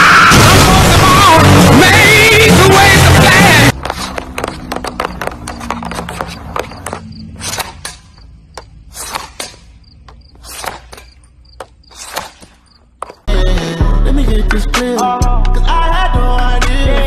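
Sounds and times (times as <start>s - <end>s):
hockey stick and puck clacking: 9.0s - 9.6s.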